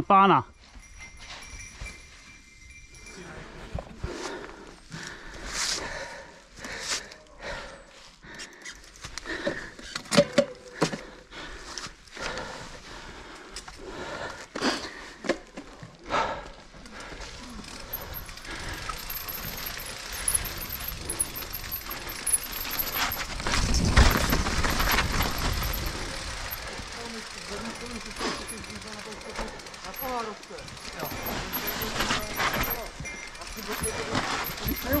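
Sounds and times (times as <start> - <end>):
bike clattering over bumps: 14.4 - 35.0
wind and tyre noise: 15.3 - 35.0.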